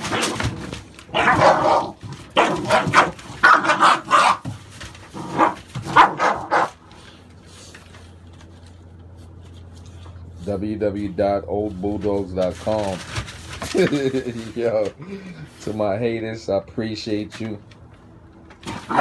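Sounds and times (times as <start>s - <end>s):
puppies barking and yipping: 0.0s - 4.6s, 5.2s - 6.9s.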